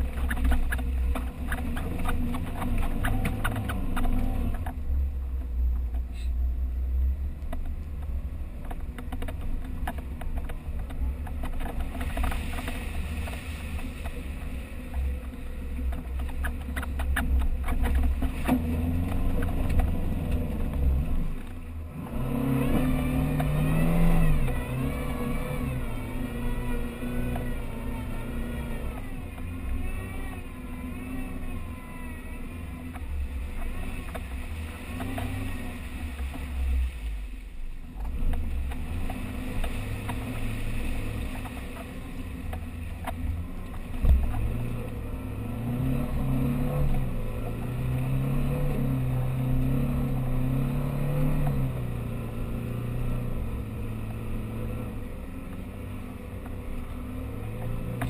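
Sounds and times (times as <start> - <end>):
engine revving: 0.0 - 5.0, 9.0 - 37.3, 38.0 - 58.0.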